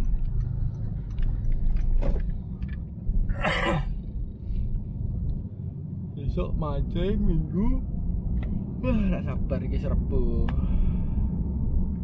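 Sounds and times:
engine and road rumble: 0.0 - 12.0.

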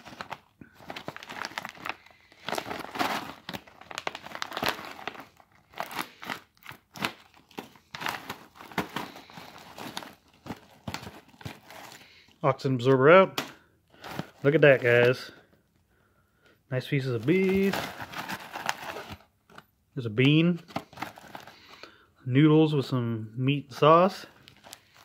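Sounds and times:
pouch tearing open: 0.0 - 12.0, 17.3 - 19.2
food pouch crinkling: 0.0 - 12.3, 17.2 - 19.3, 20.8 - 21.8, 24.3 - 25.0.

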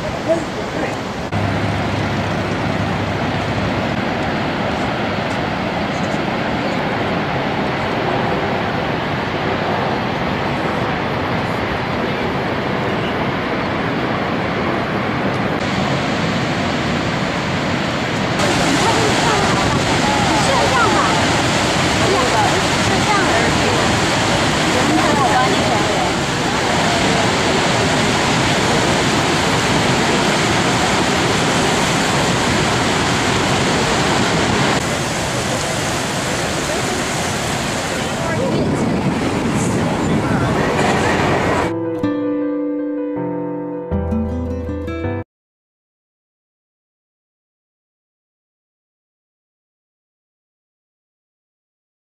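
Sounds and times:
waterfall rushing: 0.0 - 41.8.

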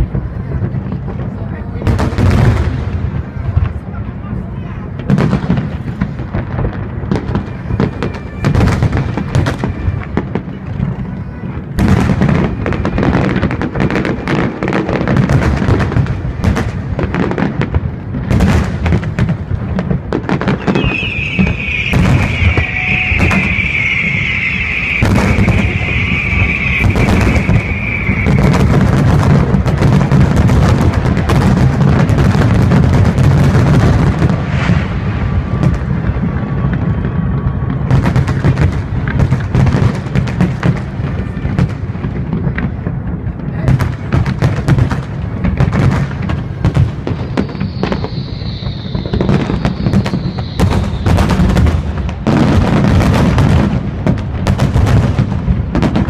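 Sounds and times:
low rumble of barrage: 20.0 - 29.8, 46.2 - 52.9
firework shells bursting: 20.1 - 30.1, 46.1 - 53.6
high hiss: 47.2 - 51.8.

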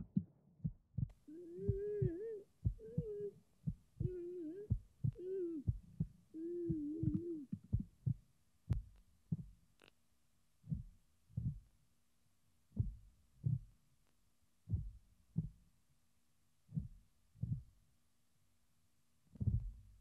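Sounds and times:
heartbeat thumps: 0.0 - 9.6, 10.7 - 11.7, 12.8 - 13.7, 14.7 - 15.6, 16.7 - 17.7, 19.4 - 19.9.

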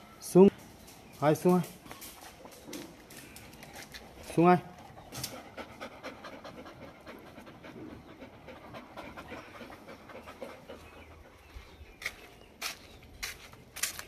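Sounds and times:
dog panting: 3.9 - 11.9.

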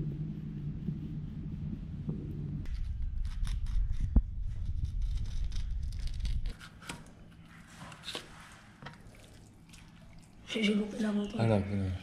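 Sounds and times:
low rumble: 0.0 - 6.5.

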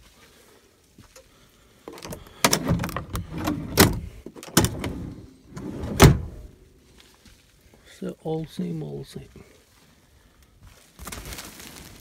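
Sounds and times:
handling knocks and clicks: 1.9 - 5.2.

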